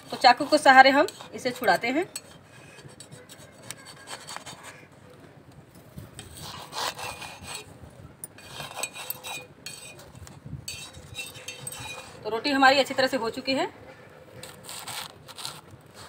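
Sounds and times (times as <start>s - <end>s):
knife blade scraping griddle: 0.0s - 4.8s, 6.2s - 7.7s, 8.4s - 12.2s, 14.4s - 16.0s.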